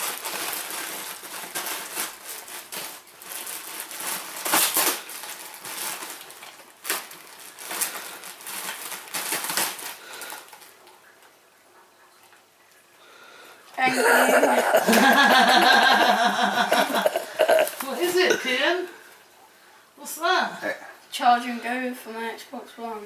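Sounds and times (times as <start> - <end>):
plastic wrapping crinkling and tearing: 0.0 - 11.3.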